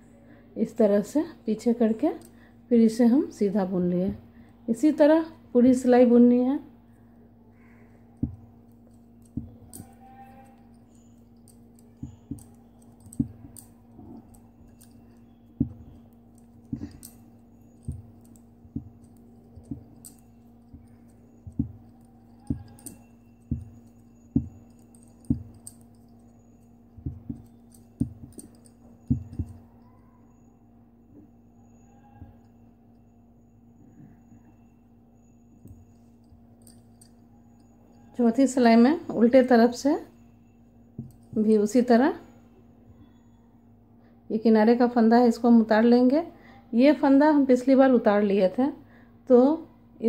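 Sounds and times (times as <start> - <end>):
steady low hum: 0.0 - 50.0
metal knitting needles clicking: 8.2 - 29.9.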